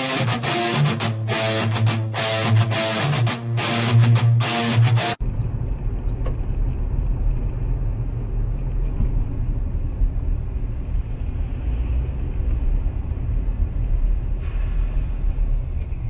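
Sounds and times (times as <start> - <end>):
car road and engine rumble: 5.2 - 16.0.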